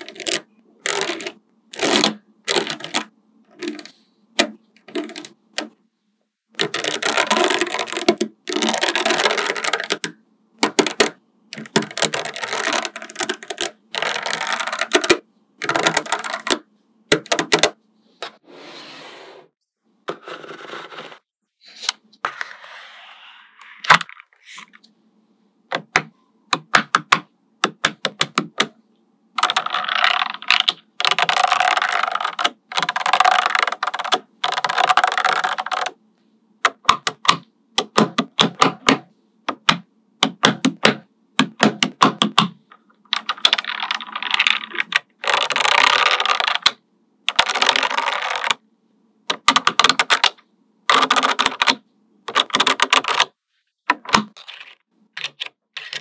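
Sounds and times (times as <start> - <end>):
magnetic balls clicking together: 0.0 - 5.8, 6.6 - 17.8, 25.7 - 28.8, 29.4 - 36.0, 36.6 - 48.6, 49.3 - 53.3.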